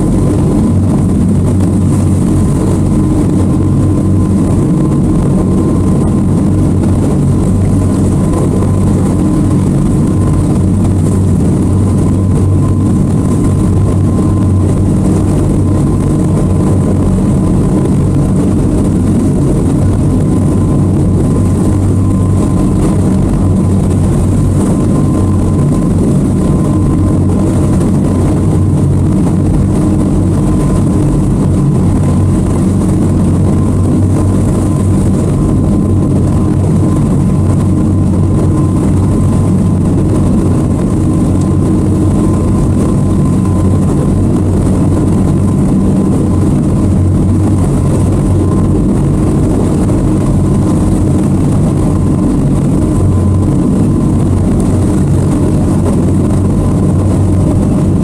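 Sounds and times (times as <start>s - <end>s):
faint steady whine: 0.0s - 58.0s
outboard motors droning: 0.0s - 58.0s.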